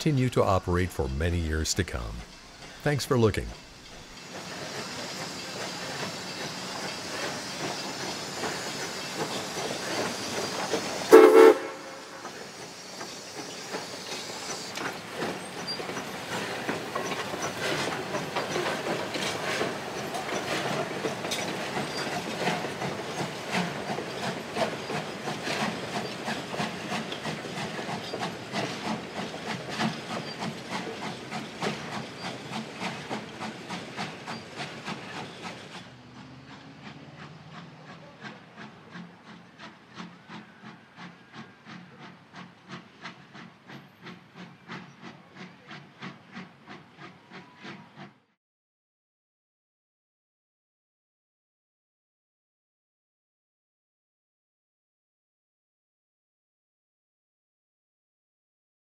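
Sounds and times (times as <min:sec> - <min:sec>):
steam locomotive hissing: 0:00.0 - 0:48.2
wheels clicking over rail joints: 0:03.6 - 0:48.2
train whistle blast: 0:11.1 - 0:12.5.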